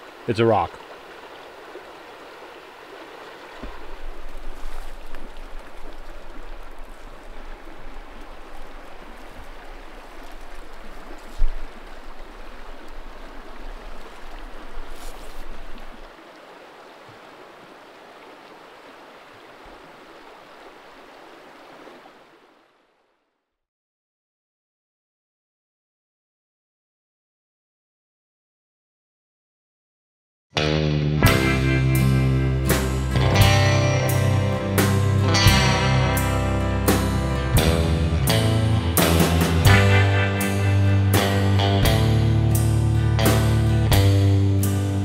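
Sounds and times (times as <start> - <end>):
river rushing: 0.0 - 23.1.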